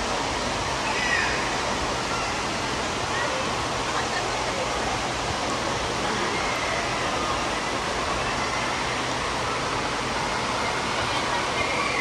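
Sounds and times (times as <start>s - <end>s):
water rushing: 0.0s - 12.0s
faint voices: 0.7s - 12.0s.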